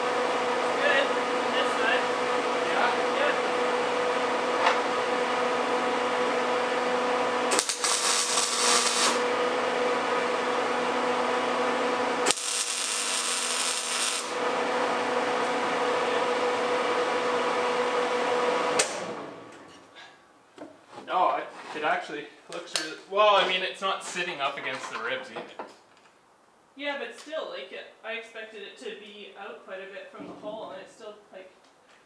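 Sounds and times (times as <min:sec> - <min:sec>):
machine hum: 0:00.0 - 0:19.8
arc welding crackling: 0:05.6 - 0:16.0.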